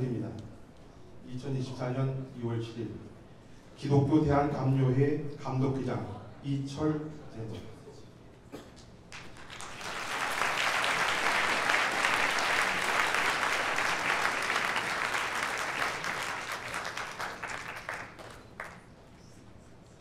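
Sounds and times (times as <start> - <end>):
audience applauding: 9.1 - 18.9.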